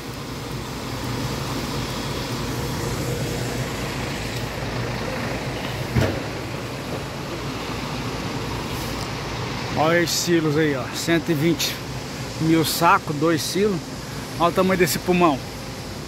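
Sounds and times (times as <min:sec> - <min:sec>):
grain-handling machinery hum: 0:00.0 - 0:16.0
truck engines rumbling: 0:00.0 - 0:16.0
sharp thump: 0:05.9 - 0:06.4.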